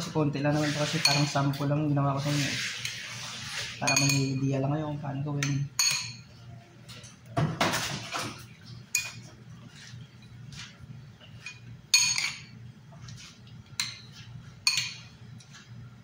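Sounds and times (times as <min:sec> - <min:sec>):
metal spoon clinking on glass bowl: 0:03.9 - 0:04.6, 0:05.4 - 0:06.3, 0:11.4 - 0:12.5, 0:13.8 - 0:15.1.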